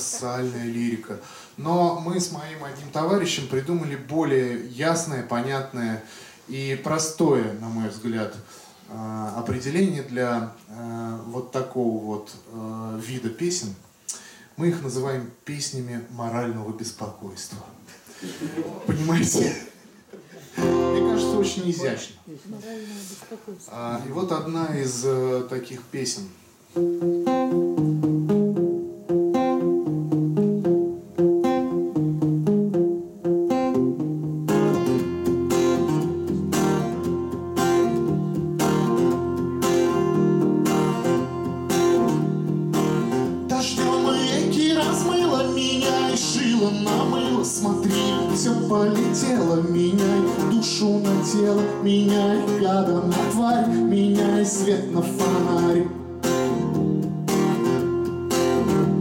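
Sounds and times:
acoustic guitar picking and strumming: 20.5 - 22.1, 26.7 - 59.0
man singing: 20.6 - 22.0, 43.4 - 56.1.

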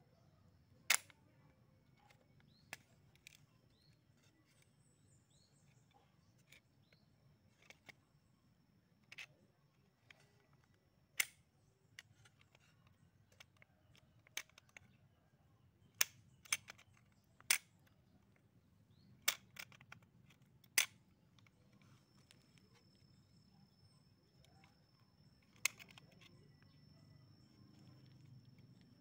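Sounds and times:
crossbow trigger metallic clicks: 0.9 - 1.2.

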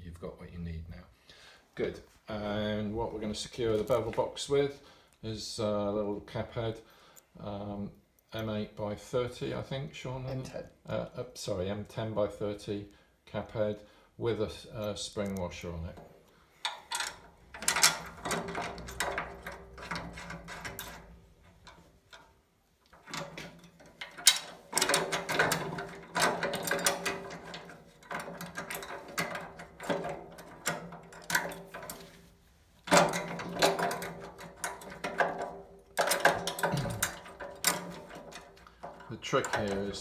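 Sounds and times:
bolts clicking and rattling: 14.8 - 40.0.

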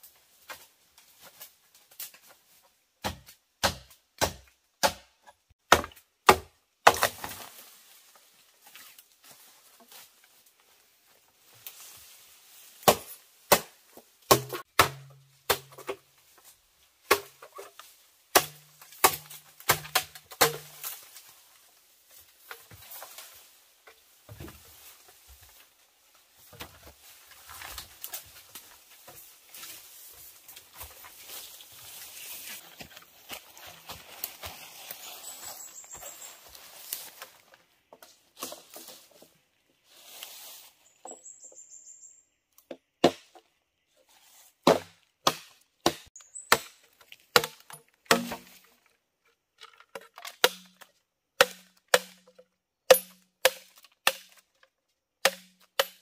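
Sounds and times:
blade chopping bamboo: 3.0 - 7.4, 12.8 - 16.0, 18.3 - 21.0, 44.6 - 48.6, 50.0 - 54.4, 55.2 - 56.0.

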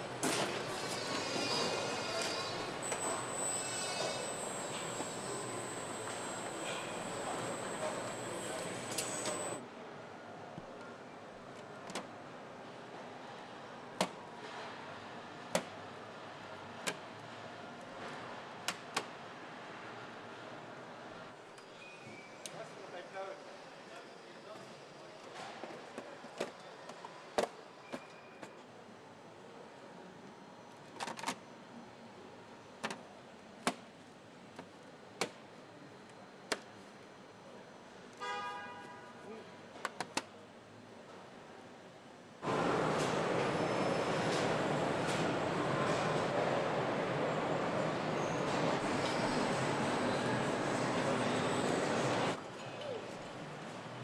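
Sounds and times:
assembly hall background noise: 0.0 - 54.0.

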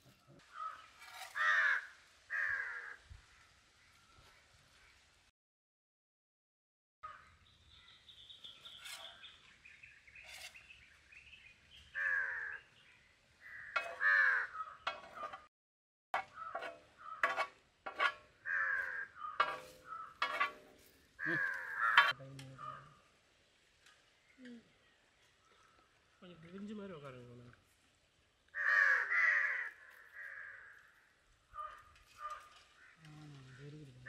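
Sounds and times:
birds calling: 7.0 - 15.5, 16.2 - 23.1.

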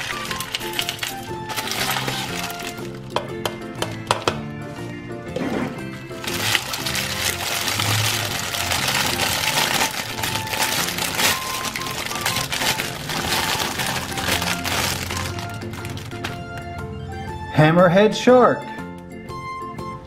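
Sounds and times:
plastic bag crinkling: 0.0 - 3.2, 6.1 - 16.6
background music: 0.0 - 20.0.

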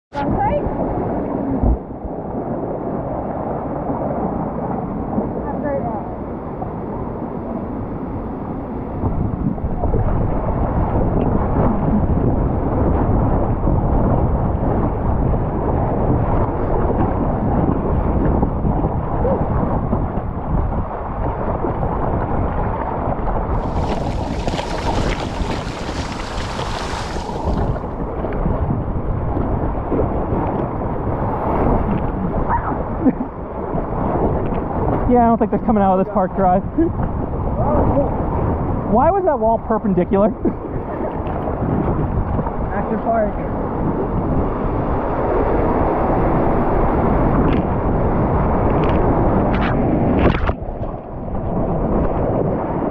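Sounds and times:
water rushing on waterslide: 0.2 - 52.9
water rushing down waterslide: 23.4 - 28.4
short splashes: 23.5 - 28.0.

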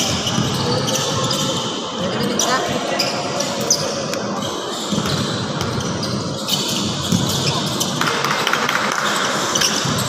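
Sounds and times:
voices of players and spectators: 0.0 - 10.0
basketball bouncing on court floor: 4.9 - 10.0.

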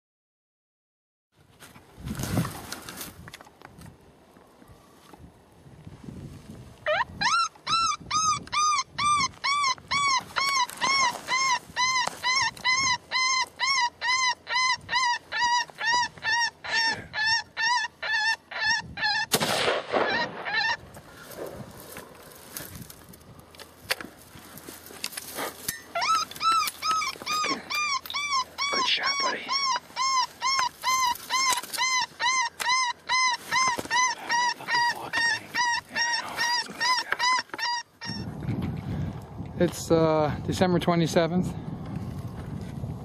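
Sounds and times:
rabbit distress call squealing: 6.8 - 20.9, 25.8 - 38.4
rifle shot: 19.3 - 20.5.

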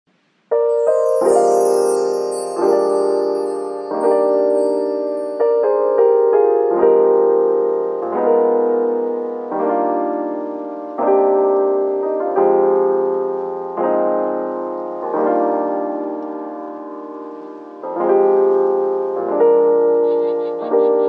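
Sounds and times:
soft piano chords: 0.5 - 21.0.

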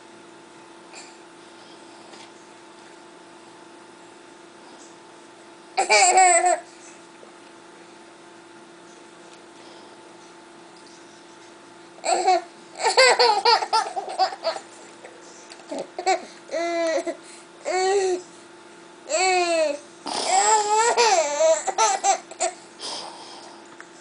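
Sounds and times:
baby laughing and squealing: 5.8 - 6.6, 12.0 - 14.7, 20.3 - 22.6.

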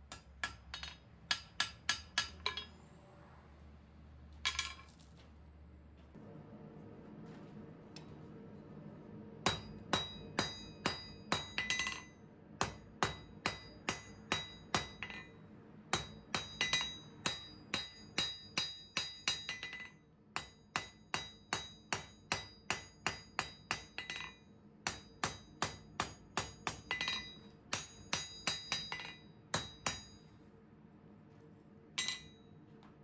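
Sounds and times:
hammer striking steel on anvil: 0.0 - 2.8, 9.4 - 30.3, 32.0 - 32.5.

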